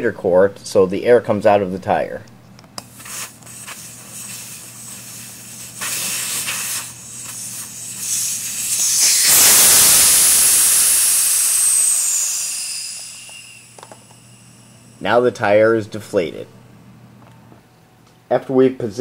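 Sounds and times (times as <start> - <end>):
air hissing out of tire: 2.8 - 15.0.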